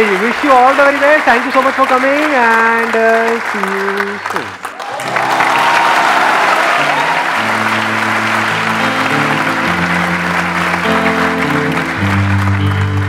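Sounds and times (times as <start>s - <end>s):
audience clapping: 0.0s - 13.0s
background music of held notes: 6.1s - 13.0s.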